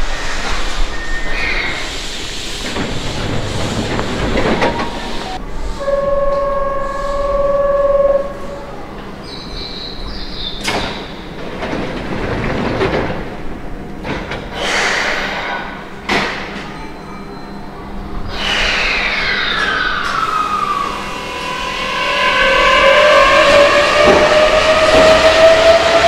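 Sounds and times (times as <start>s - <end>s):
train clunks: 2.5s - 17.5s, 21.9s - 26.0s
train motor whine: 2.6s - 9.1s, 18.4s - 26.0s.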